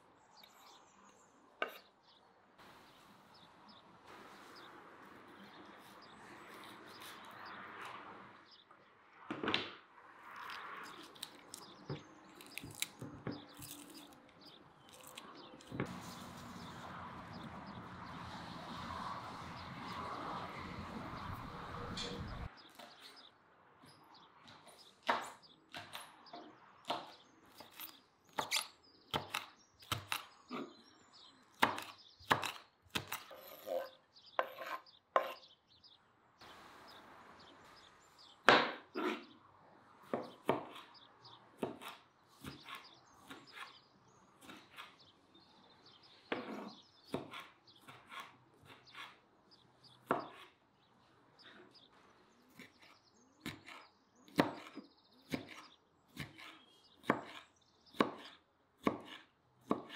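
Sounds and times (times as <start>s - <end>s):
knife chopping on wooden board: 31.6s - 33.3s, 40.0s - 40.9s, 41.6s - 43.7s, 46.3s - 49.2s, 50.0s - 50.5s, 53.4s - 59.9s.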